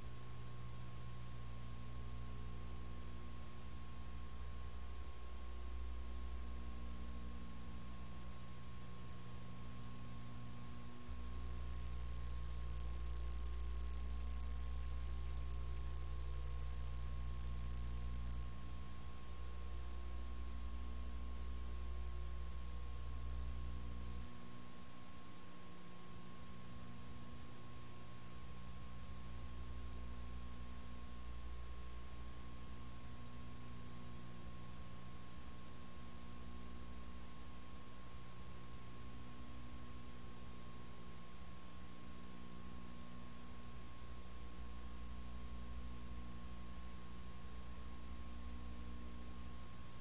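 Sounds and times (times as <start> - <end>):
low electrical hum: 0.0 - 50.0.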